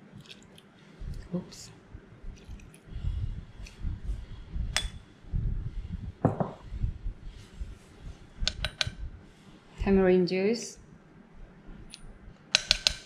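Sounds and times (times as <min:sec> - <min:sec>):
dull knocks of mortar and pestle: 0:06.2 - 0:06.6.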